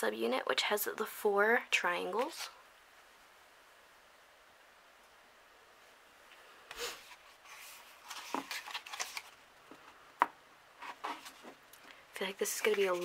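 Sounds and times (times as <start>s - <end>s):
book pages rustling: 6.7s - 10.0s, 10.8s - 11.6s, 12.2s - 13.0s.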